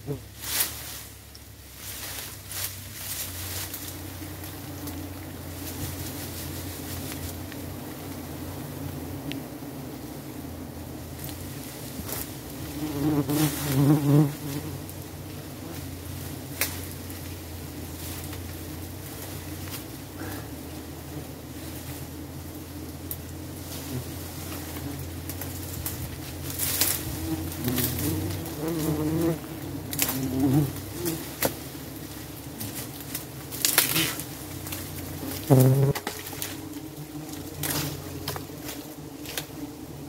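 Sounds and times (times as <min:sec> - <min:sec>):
bees buzzing: 0:03.2 - 0:40.0
sharp knocks and crackles: 0:24.4 - 0:39.6.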